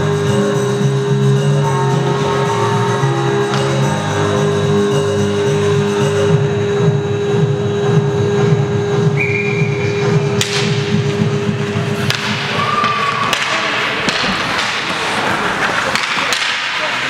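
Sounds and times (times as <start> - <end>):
music with steady beat: 0.0 - 13.5
skates scraping ice: 9.8 - 17.0
hockey sticks and puck clacking: 10.0 - 17.0.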